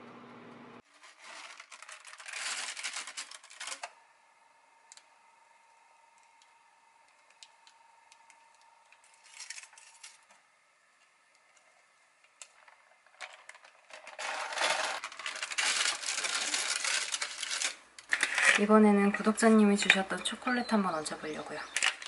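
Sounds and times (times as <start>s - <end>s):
baking paper crinkling: 0.8s - 4.0s, 8.9s - 10.4s, 12.4s - 19.5s.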